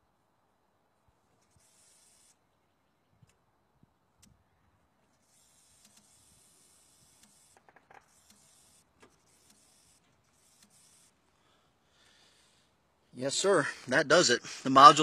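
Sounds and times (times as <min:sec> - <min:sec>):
fuel pump whirring hiss: 0:01.4 - 0:02.5, 0:05.0 - 0:14.7.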